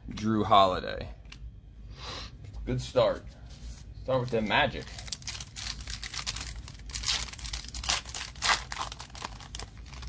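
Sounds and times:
foil wrapper tearing and crinkling: 4.3 - 10.0.

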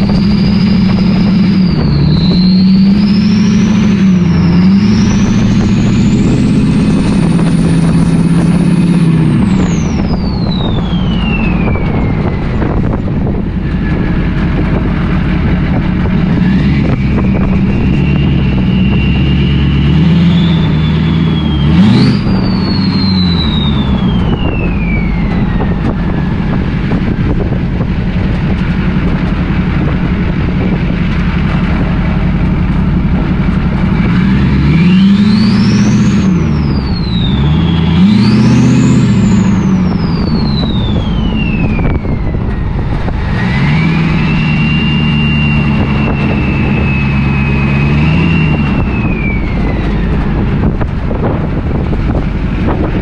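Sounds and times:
turbo whistle: 0.0 - 12.8, 16.8 - 26.6, 34.7 - 50.2
diesel engine revving: 0.0 - 53.0.

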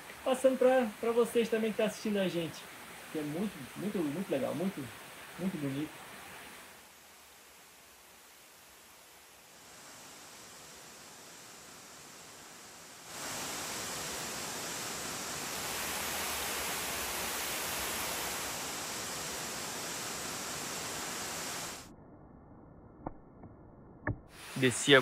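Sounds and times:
waterfall rushing: 0.0 - 6.9, 9.2 - 21.9
faint hiss: 0.0 - 21.9, 24.3 - 25.0.

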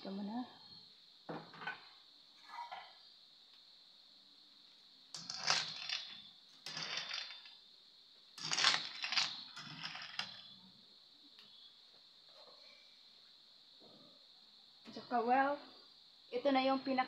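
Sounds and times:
metal spatula scraping wok: 8.4 - 10.4.

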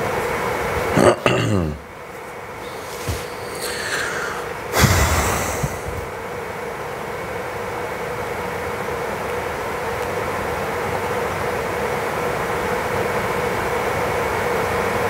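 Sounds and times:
faint steady hum: 0.0 - 15.0
room noise hiss: 0.0 - 15.0
brief rush of noise: 2.6 - 6.1.

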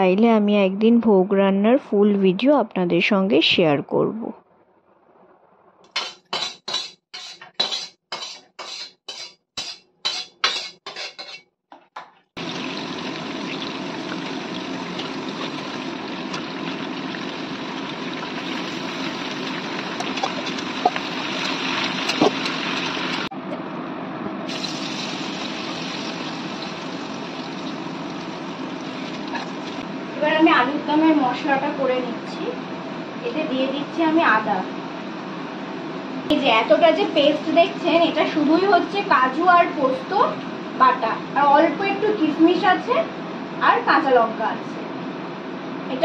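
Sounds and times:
potatoes sizzling in oil: 12.4 - 23.3, 24.5 - 29.8.

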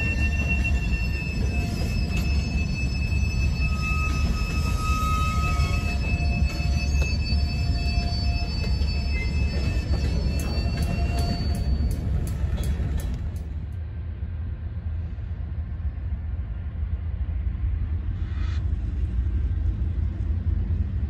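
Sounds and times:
high-pitched wheel squeal: 0.0 - 13.2
train wheels rumbling on rails: 0.0 - 21.0
light clicks from rails: 10.4 - 13.8.

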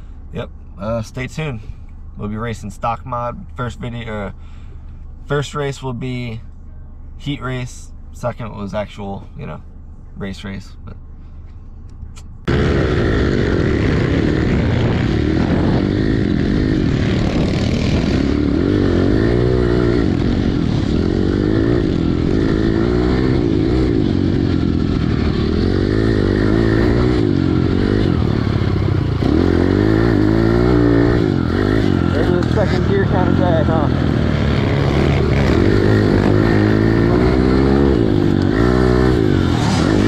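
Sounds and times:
motorbike engine revving: 12.4 - 40.0.

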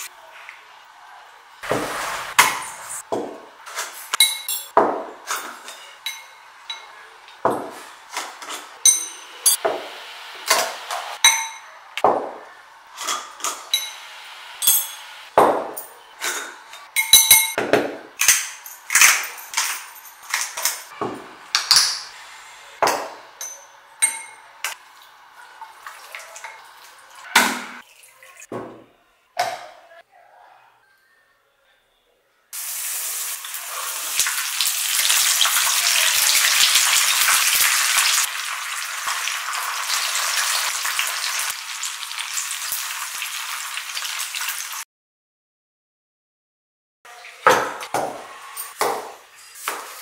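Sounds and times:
spoon clinking on glass: 17.0 - 17.6, 23.4 - 24.4.

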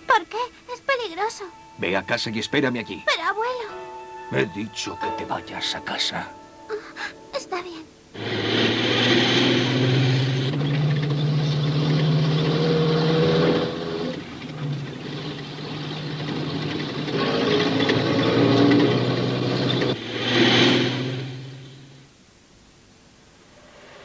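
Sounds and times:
truck engine running hard: 8.2 - 22.0
tyres rushing: 8.2 - 22.0.

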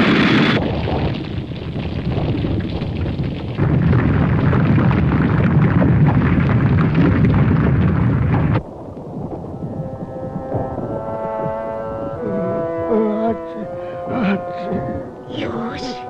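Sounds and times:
cartoon explosion rumble: 0.0 - 15.2.

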